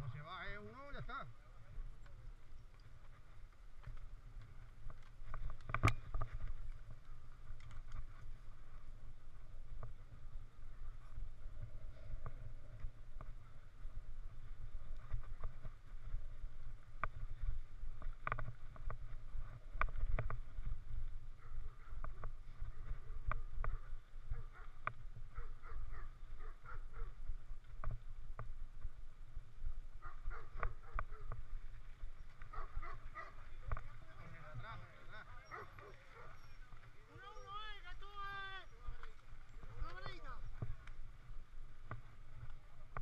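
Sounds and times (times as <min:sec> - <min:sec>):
wind rumble on microphone: 0:01.3 - 0:36.8
bike clicks and rattles: 0:01.9 - 0:08.8.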